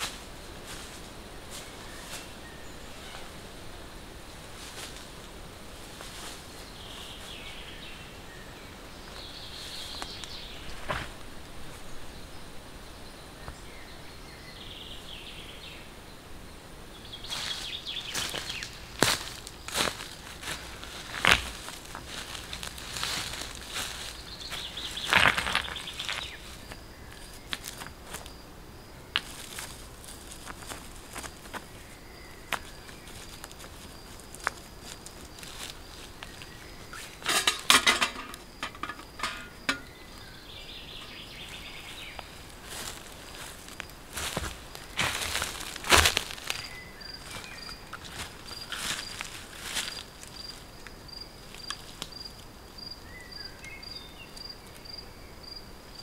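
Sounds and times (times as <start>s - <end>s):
dry leaves crunching underfoot: 0.0s - 3.4s, 4.4s - 8.0s, 17.2s - 28.4s, 29.2s - 52.3s
high insect drone: 0.0s - 56.0s.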